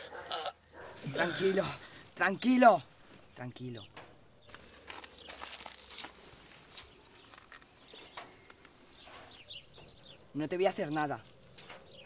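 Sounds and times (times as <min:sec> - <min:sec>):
faint rustling and crackling: 0:00.8 - 0:12.0.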